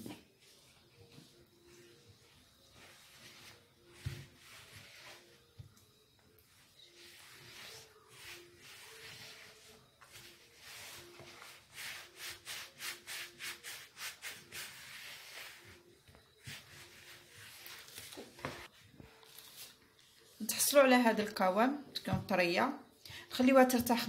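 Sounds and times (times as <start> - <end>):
hand kneading crumbly dough: 6.5 - 15.8.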